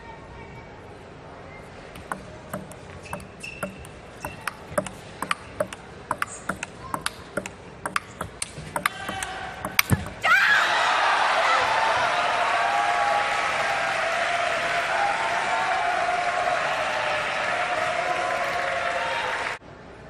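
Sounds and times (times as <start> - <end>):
table tennis ball clicking: 2.0 - 10.2
crowd applause: 10.7 - 19.6.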